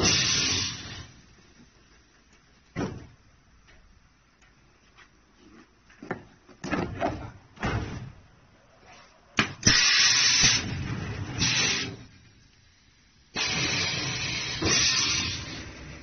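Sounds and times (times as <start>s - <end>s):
loud hiss: 0.0s - 1.4s, 9.4s - 16.0s.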